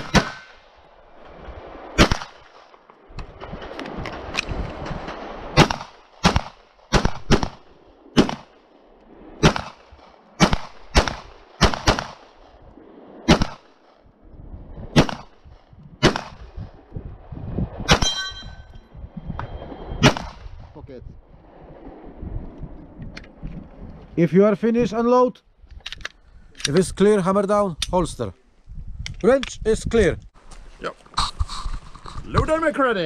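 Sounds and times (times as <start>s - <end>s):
pistol shots: 0.0s - 0.7s, 2.0s - 2.6s, 5.6s - 8.6s, 9.4s - 12.4s, 13.3s - 13.7s, 15.0s - 15.4s, 16.0s - 16.4s, 20.0s - 20.5s
steel target ringing: 17.9s - 19.6s.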